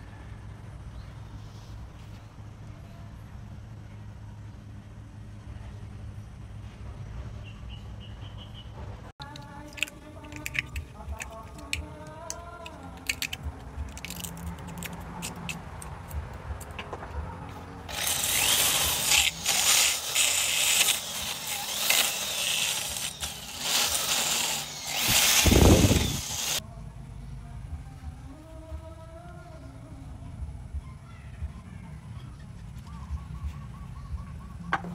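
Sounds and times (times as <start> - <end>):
drill sanding wood: 17.9 - 26.6.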